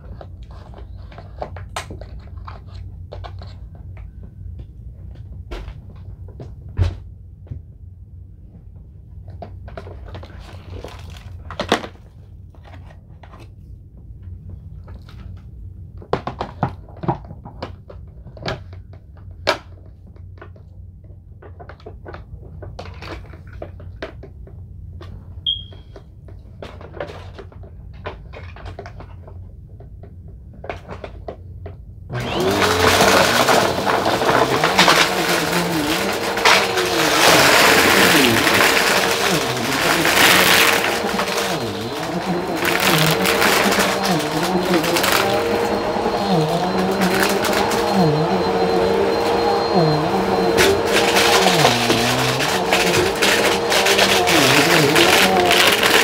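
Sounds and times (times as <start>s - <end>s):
vacuum cleaner running: 32.1s - 56.0s.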